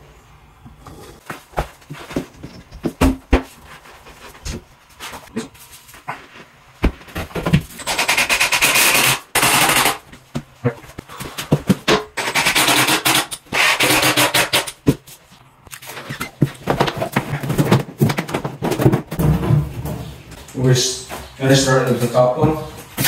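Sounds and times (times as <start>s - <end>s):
wooden panels scraping and rattling: 0.8s - 10.0s, 15.8s - 23.0s.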